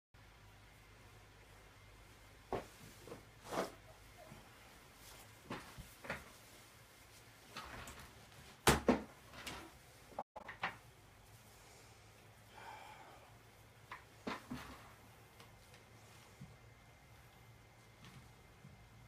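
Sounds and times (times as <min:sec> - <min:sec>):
low room hum: 0:00.2 - 0:19.0
objects knocking and clunking: 0:13.9 - 0:15.0.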